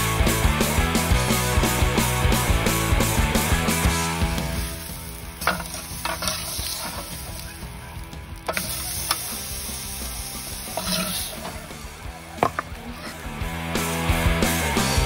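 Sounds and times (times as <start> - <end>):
steak sizzling on grill: 2.8 - 13.9.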